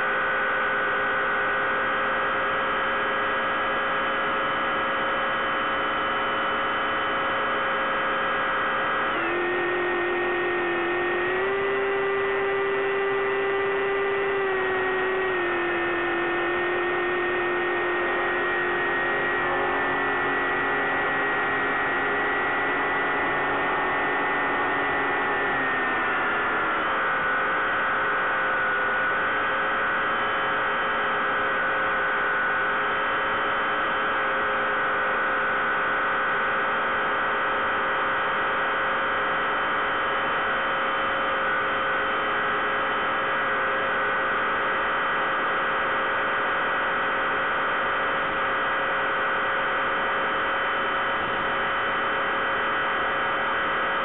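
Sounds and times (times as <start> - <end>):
model plane motor humming: 9.1 - 29.2.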